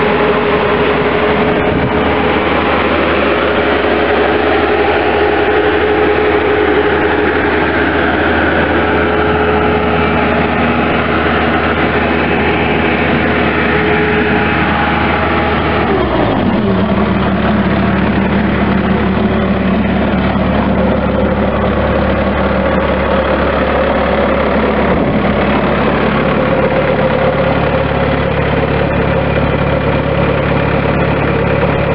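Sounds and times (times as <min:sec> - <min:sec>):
diesel engine winding down and idling: 0:00.0 - 0:31.9.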